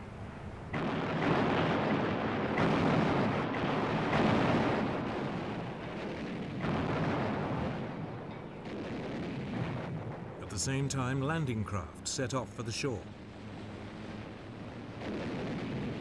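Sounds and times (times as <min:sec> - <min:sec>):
heavy guns firing: 0:00.8 - 0:08.0.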